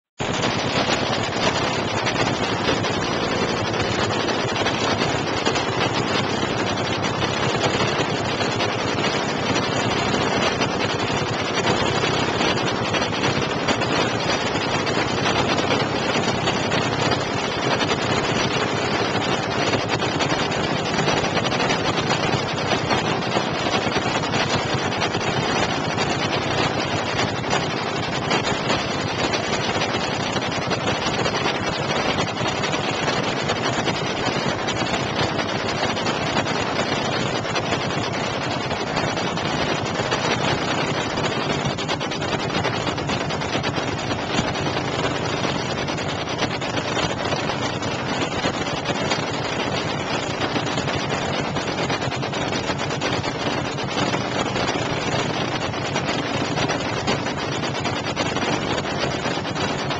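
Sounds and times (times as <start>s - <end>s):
drag racing engine idling: 0.2s - 59.9s.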